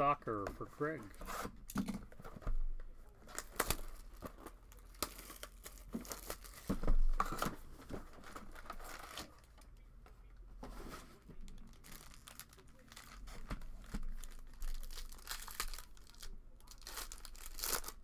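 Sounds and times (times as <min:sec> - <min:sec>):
plastic shrink-wrap tearing: 0:03.3 - 0:06.7, 0:11.6 - 0:18.0.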